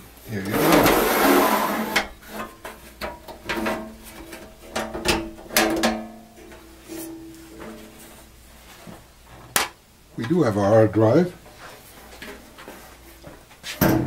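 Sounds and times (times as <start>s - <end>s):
sheet metal knocking and clanking: 1.9s - 7.8s.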